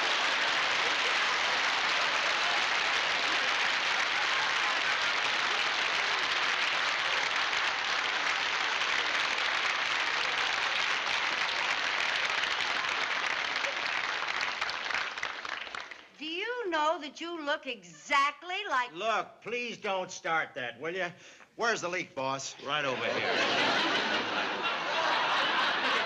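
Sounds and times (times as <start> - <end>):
audience applauding: 0.0 - 16.2, 23.0 - 26.0.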